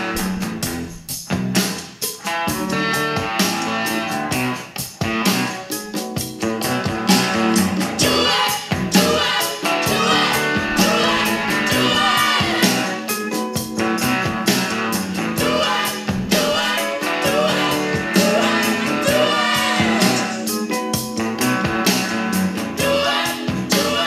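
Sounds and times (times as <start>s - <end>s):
song with singing from speakers: 0.0s - 24.0s.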